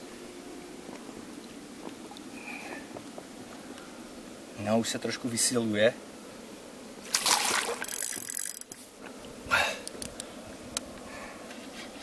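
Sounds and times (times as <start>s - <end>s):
fish splashing at surface: 7.0s - 8.6s
fishing reel clicks: 7.8s - 8.8s.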